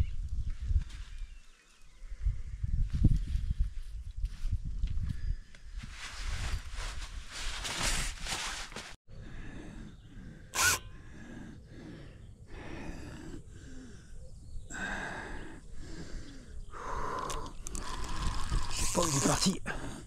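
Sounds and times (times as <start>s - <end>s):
person breathing heavily: 9.1s - 18.9s, 19.6s - 20.0s.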